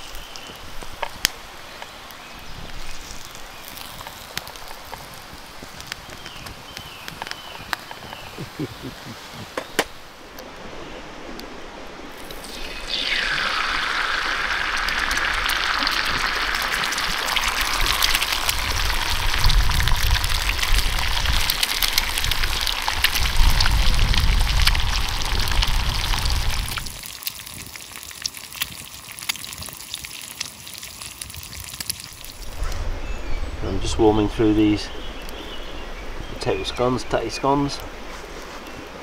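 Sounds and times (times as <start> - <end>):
eggs sizzling in a skillet: 2.0 - 8.3, 12.2 - 32.5.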